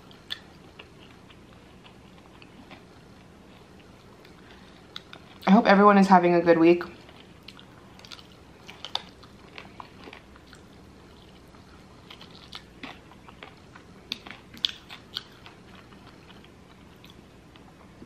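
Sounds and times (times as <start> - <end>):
soft chewing: 0.0 - 5.5, 7.0 - 18.0
crunches of crisp food: 7.0 - 18.0.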